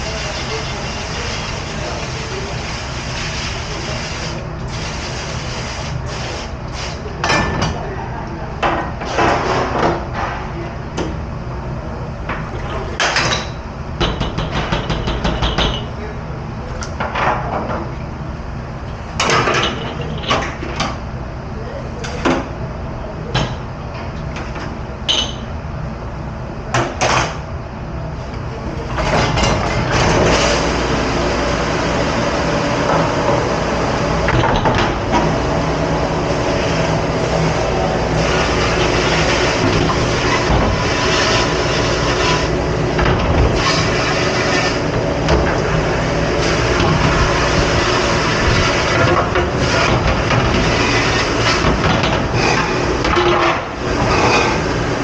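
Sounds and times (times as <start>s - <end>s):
rushing rumbling machine noise: 9.4s - 15.7s, 27.5s - 55.0s
dishes and racks knocking: 12.3s - 16.0s.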